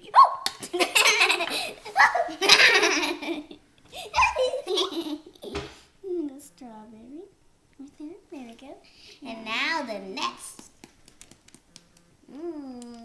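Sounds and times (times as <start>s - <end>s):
children laughing and giggling: 0.6s - 5.4s.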